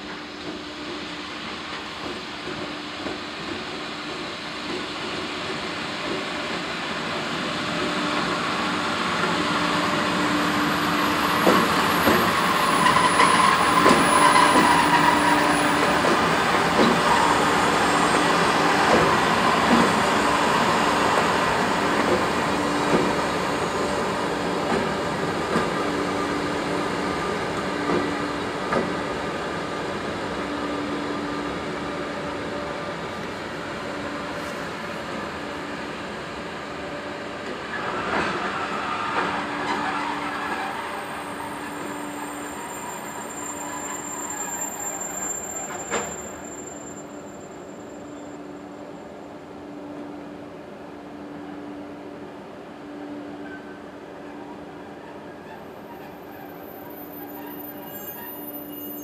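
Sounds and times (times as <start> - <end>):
high wheel squeal: 9.8 - 18.8, 37.7 - 48.8, 53.4 - 59.0.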